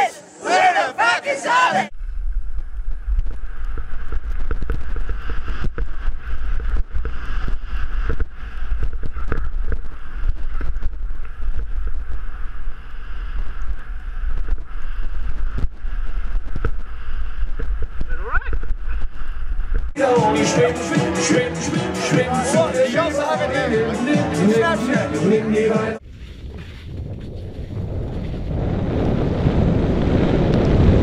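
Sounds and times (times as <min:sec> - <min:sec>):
wind buffeting microphone: 0:26.0 - 0:31.0.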